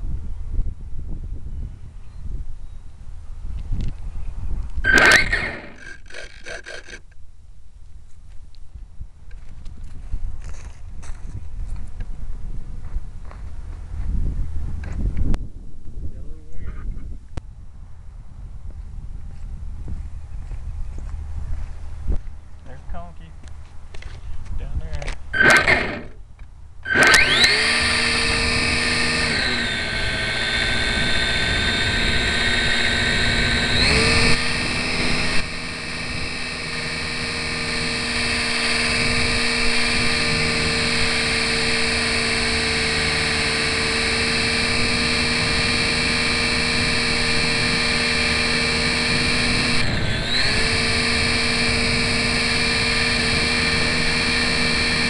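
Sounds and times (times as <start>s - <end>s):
model plane motor whining: 4.8s - 7.2s, 25.4s - 26.2s, 26.8s - 55.0s.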